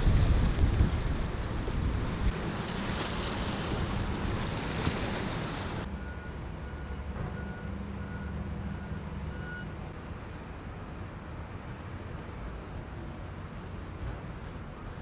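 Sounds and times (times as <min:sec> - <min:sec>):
surf: 0:00.0 - 0:05.9
wind buffeting microphone: 0:00.0 - 0:05.9
low engine hum: 0:00.0 - 0:15.0
faint high beep: 0:05.9 - 0:09.8.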